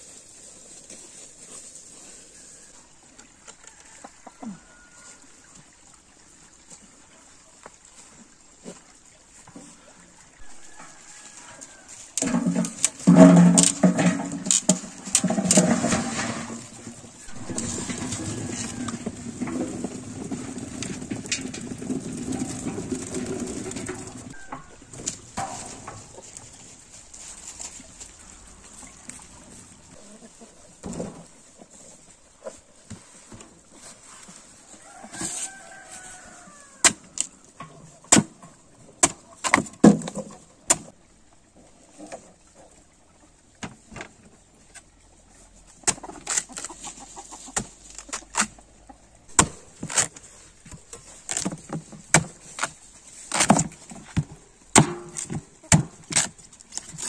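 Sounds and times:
chicken calling: 17.2 - 20.3, 24.1 - 26.5.

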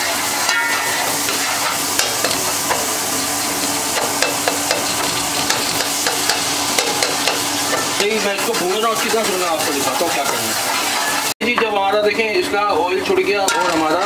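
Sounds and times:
food sizzling in hot fat: 0.0 - 11.3
metal spatula scraping a pot: 1.3 - 7.4
metal clinking against a pot: 3.2 - 7.4.

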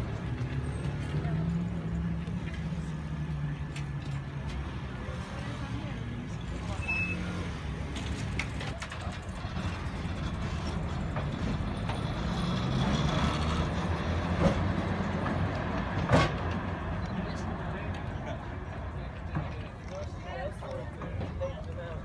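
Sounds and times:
tram wheels rumbling on rails: 7.5 - 22.0
wheels clacking over rail joints: 7.8 - 22.0.

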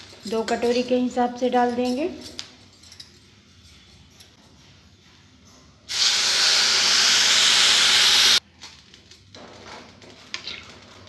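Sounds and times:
water hissing into steam: 5.9 - 8.4.

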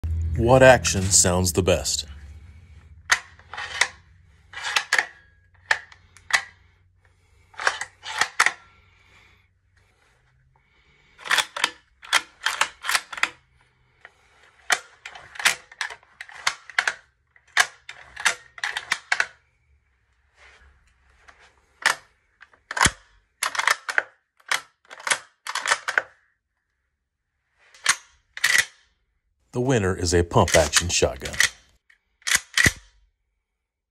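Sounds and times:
rifle bolt clicks and clacks: 3.1 - 6.7, 7.6 - 8.7, 11.2 - 13.4, 14.0 - 19.4, 21.8 - 26.2, 27.8 - 28.8, 30.4 - 31.6, 32.2 - 33.0.

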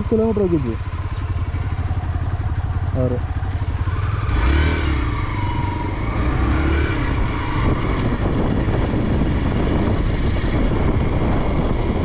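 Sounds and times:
motorcycle engine running: 0.0 - 12.0
wind rushing over microphone: 3.4 - 12.0.

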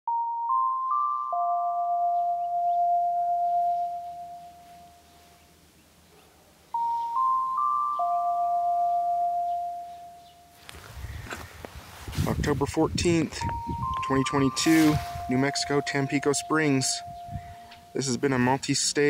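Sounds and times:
bell-like chime melody: 0.1 - 5.1, 6.8 - 10.7, 13.4 - 18.4.

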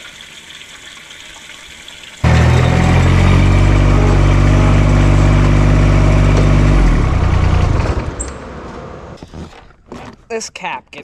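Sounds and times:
mower engine running: 2.2 - 8.4.

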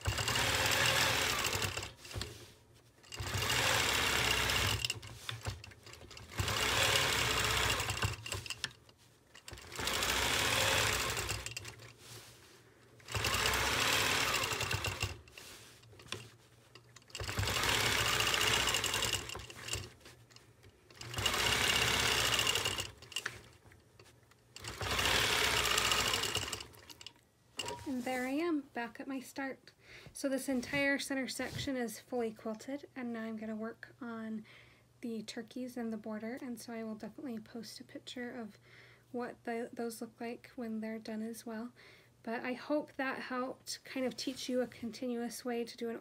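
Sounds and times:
quilting machine stitching: 0.0 - 12.1, 13.0 - 28.0.

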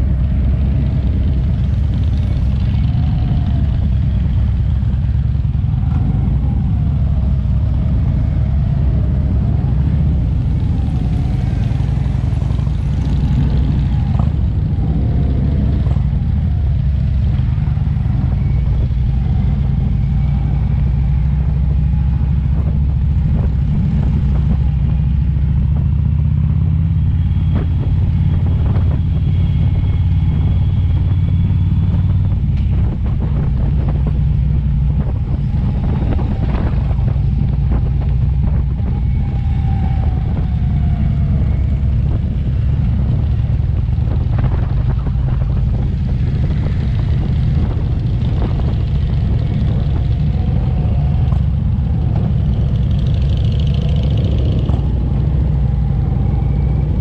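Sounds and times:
motorcycle engines rumbling: 0.0 - 57.0.

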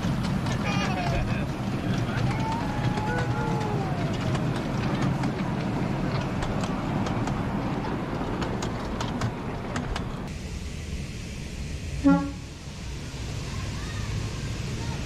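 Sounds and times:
wheel clicks on rails: 0.0 - 10.3
train cars rumbling on track: 0.0 - 15.0.

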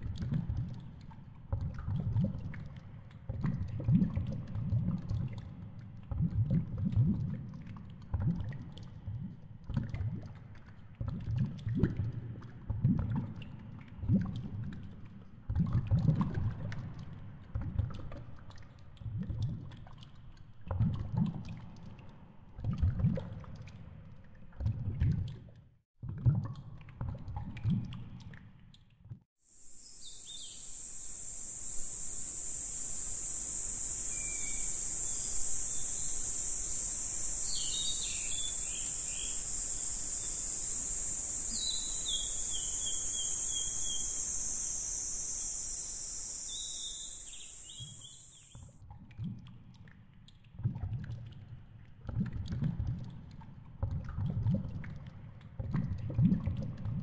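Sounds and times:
cicadas droning: 29.5 - 48.6
birds chirping: 29.7 - 48.5
underwater gurgling: 30.7 - 48.4.

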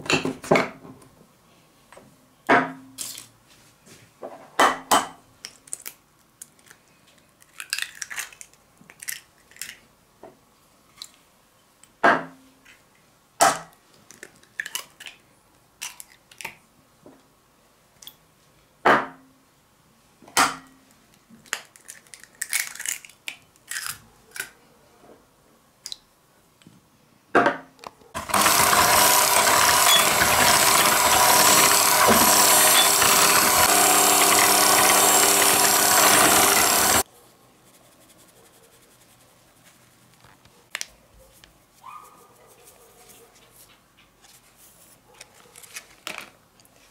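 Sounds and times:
electric hand mixer running: 28.2 - 37.0.

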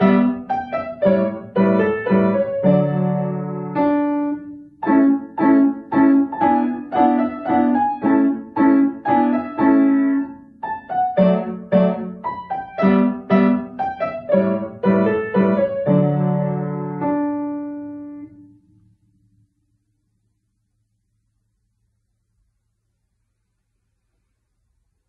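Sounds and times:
upright piano playing: 0.0 - 18.7.

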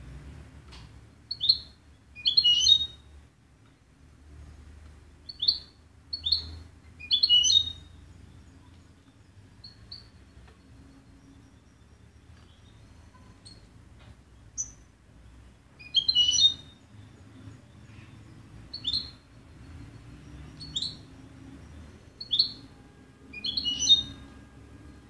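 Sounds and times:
bird chirping: 1.2 - 3.2, 5.2 - 25.0
bird twittering: 1.3 - 3.1, 5.2 - 10.3, 14.5 - 14.8, 15.8 - 17.1, 17.8 - 19.3, 19.9 - 22.7, 23.3 - 24.3.

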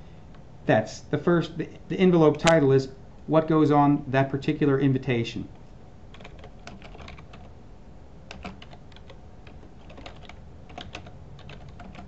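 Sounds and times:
keyboard typing: 6.1 - 7.5, 8.3 - 12.0.

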